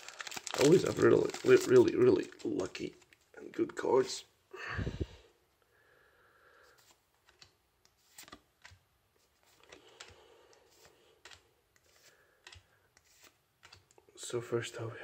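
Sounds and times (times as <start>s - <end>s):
trading cards clicking: 9.5s - 14.0s.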